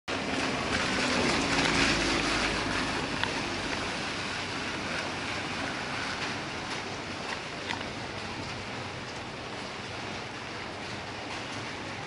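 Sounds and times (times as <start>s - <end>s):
hiss of rain-wet street traffic: 0.1s - 12.0s
vehicle passing: 0.2s - 6.8s.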